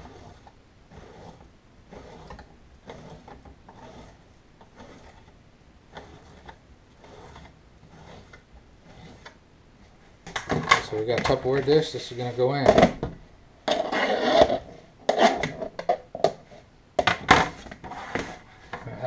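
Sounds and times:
knife cutting on plastic board: 0.0 - 5.3, 5.9 - 9.4.

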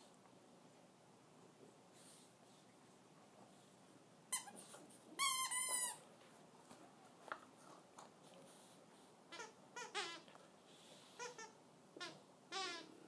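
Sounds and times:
squeaky toy squeaking: 4.3 - 4.6, 5.2 - 6.0, 9.3 - 10.3, 11.1 - 12.9.

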